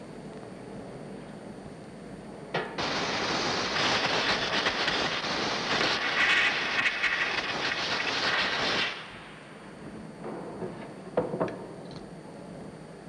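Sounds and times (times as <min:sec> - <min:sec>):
compressed-air blow gun hissing: 0:02.8 - 0:09.4.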